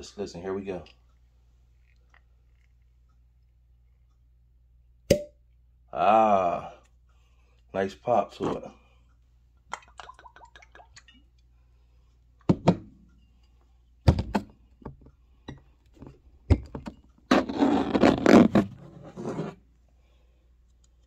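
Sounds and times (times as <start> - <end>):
liquid pouring into glass: 9.8 - 11.3.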